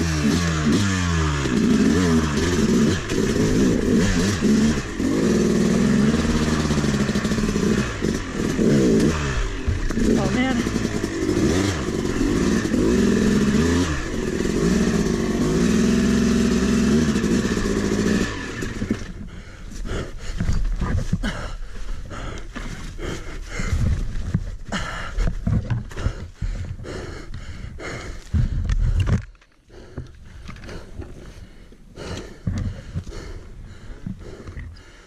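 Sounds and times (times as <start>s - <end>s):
dirt bike engine revving: 0.0s - 19.4s
knocks and scrapes of bike: 17.2s - 23.0s, 23.6s - 26.8s.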